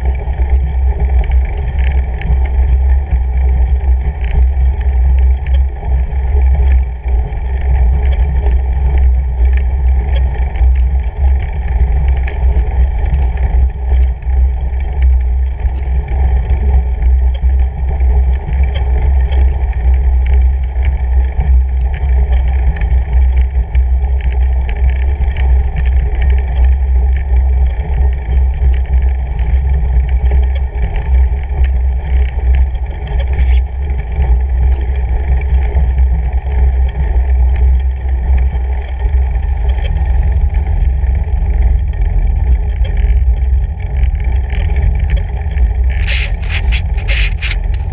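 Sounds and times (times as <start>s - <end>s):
bike tyres rolling over snowy gravel: 43.1s - 47.9s
sharp clicks and knocks: 45.8s - 47.9s.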